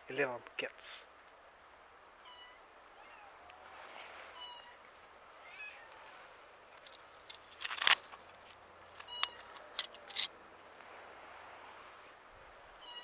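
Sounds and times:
cat meowing faintly: 2.2 - 4.8, 5.4 - 6.3, 12.8 - 13.0
loud rustling and crunching: 6.7 - 10.3.

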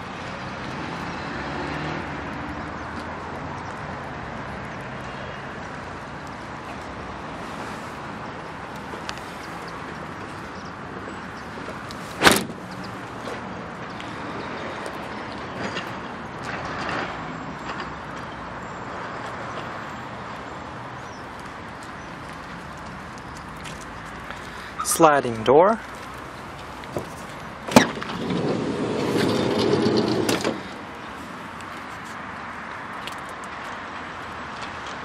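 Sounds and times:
outdoor background noise: 0.0 - 35.0
van tailgate slamming shut: 12.2 - 12.6, 27.7 - 28.2.

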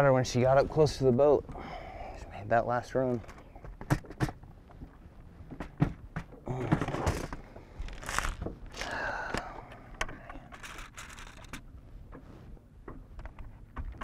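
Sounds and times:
fishing tackle knocks and clicks: 3.1 - 4.9, 5.5 - 12.2, 12.8 - 14.0
rustling and scraping: 3.2 - 9.0, 10.1 - 14.0.

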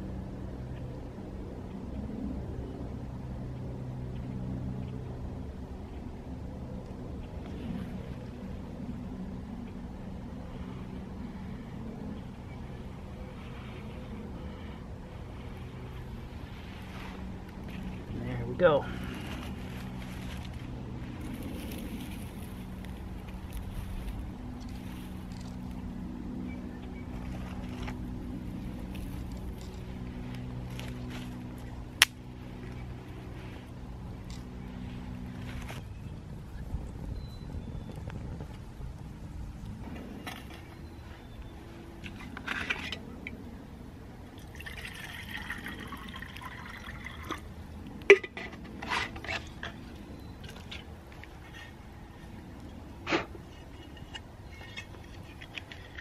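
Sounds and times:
distant engine drone: 0.0 - 56.0
dry tinder crackling: 12.6 - 43.3
water pouring into metal cup: 44.5 - 47.4.

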